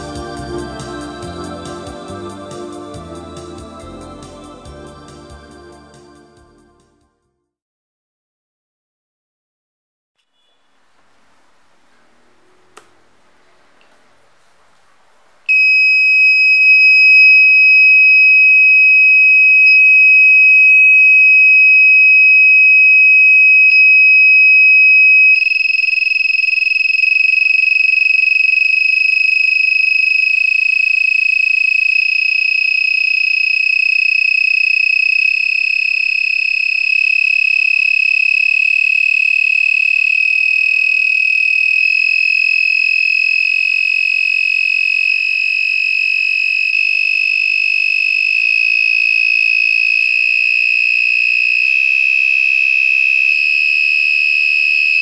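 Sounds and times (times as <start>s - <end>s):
high-pitched buzzer beep: 15.5s - 55.0s.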